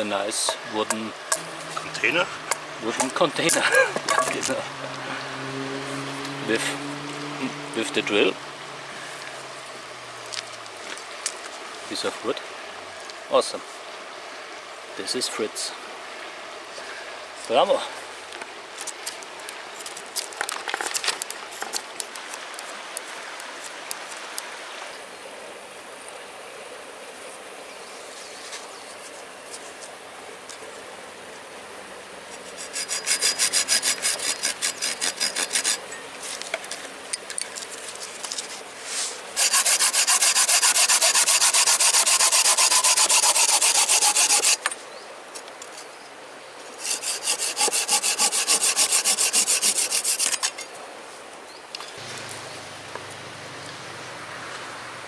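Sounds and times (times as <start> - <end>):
hand saw cutting branch: 0.0 - 5.3, 32.3 - 36.8, 38.4 - 44.7, 46.7 - 50.7
knife whittling wood: 32.4 - 35.9, 38.4 - 44.7, 46.8 - 50.7.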